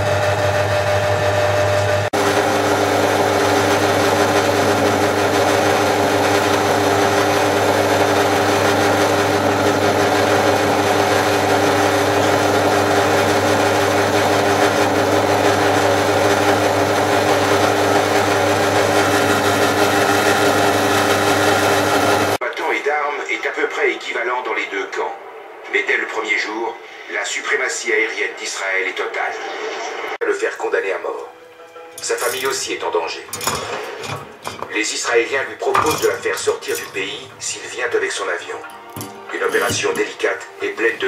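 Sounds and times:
drill press motor humming: 0:00.0 - 0:22.4.

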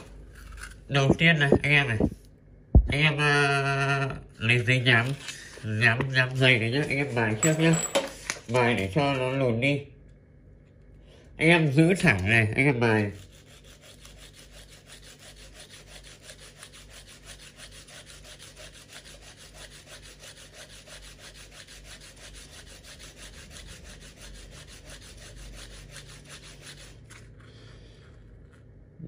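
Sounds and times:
metal scraping on sandpaper: 0:12.1 - 0:28.8.

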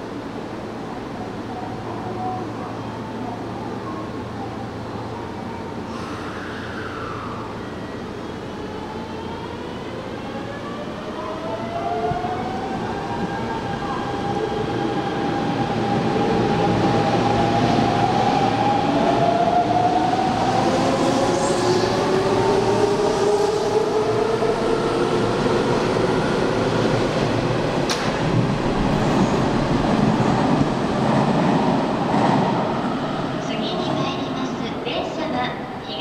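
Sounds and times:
train wheels rumbling on rails: 0:11.9 - 0:36.0.

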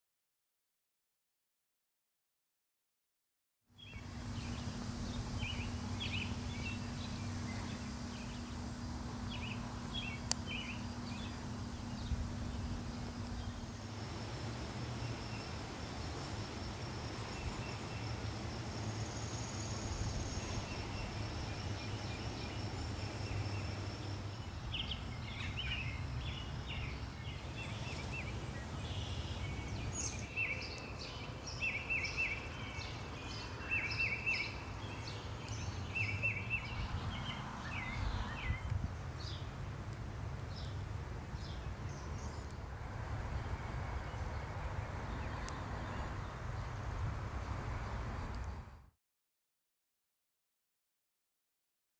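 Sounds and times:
birds chirping and calling: 0:03.8 - 0:13.9
low background rumble: 0:03.8 - 0:33.6.

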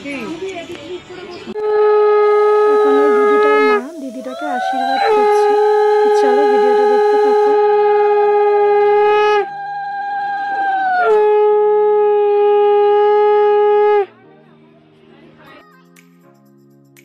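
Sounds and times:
conch shell blast: 0:01.6 - 0:09.5.

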